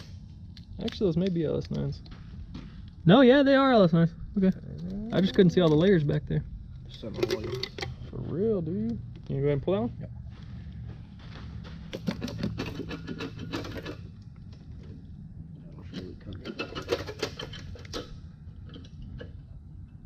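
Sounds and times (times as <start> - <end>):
steady low hum: 0.0 - 20.0
metal clicking and clattering: 11.9 - 14.1, 15.9 - 19.3.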